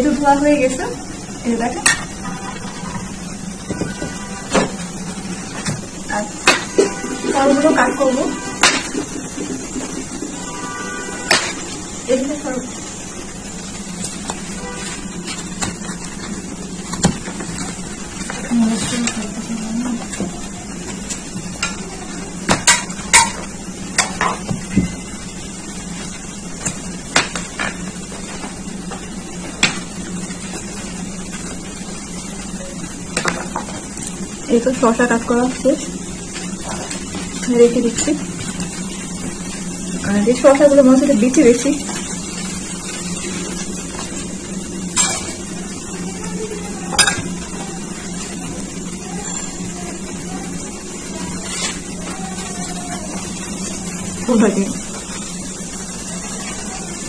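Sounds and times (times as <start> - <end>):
low background hum: 0.0 - 57.0
kitchenware clinking: 46.9 - 47.4.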